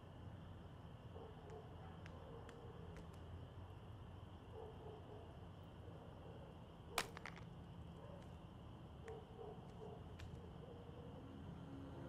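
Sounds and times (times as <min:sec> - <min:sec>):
insects chirring: 0:00.0 - 0:04.6.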